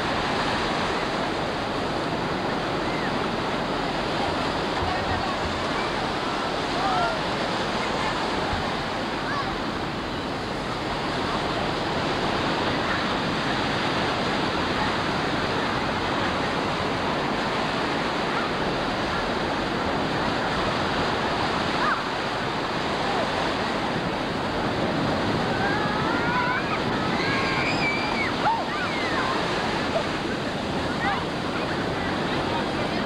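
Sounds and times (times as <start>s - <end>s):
ocean waves breaking: 0.0s - 33.0s.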